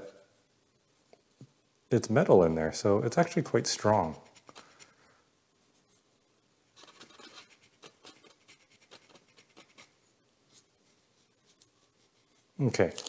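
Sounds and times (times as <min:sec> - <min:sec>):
hand file scratching metal: 0:06.8 - 0:09.9.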